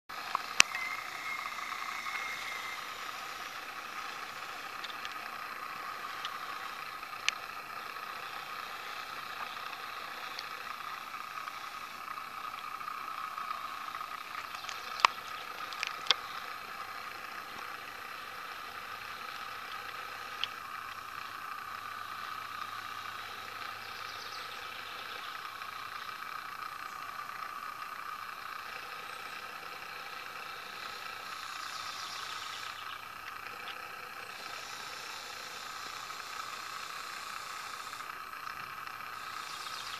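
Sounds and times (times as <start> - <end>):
sharp clicks: 0.1 - 25.4
toy car motor whining: 0.1 - 39.9.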